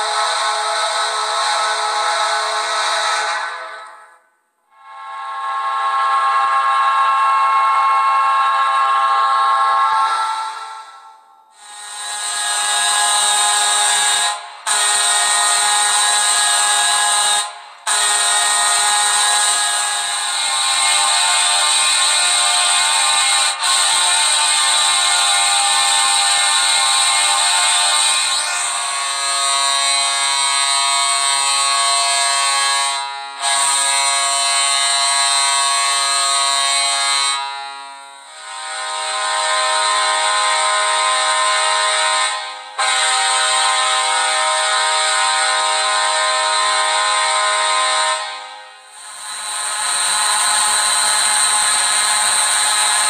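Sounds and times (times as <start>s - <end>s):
deep goal horn blasting: 0.0s - 4.2s, 28.6s - 49.0s.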